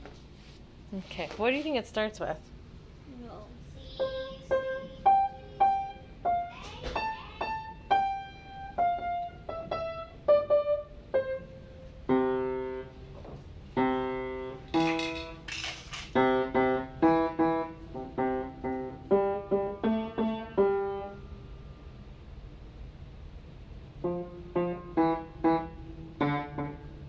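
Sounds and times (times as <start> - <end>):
child playing upright piano: 3.8 - 21.3, 24.0 - 27.0.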